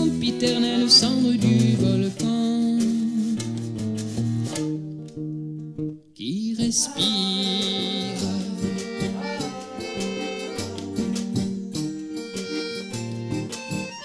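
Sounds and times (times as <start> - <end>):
acoustic guitar: 0.0 - 14.0
wordless singing voices: 6.2 - 11.5
accordion: 6.9 - 14.0
bongos: 7.2 - 14.0.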